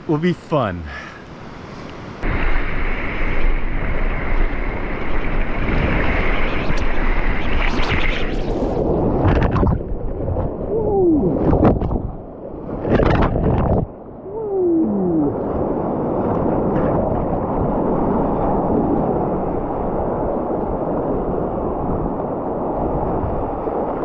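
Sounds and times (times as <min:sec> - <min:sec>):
whitewater rushing and crashing: 0:00.0 - 0:06.4.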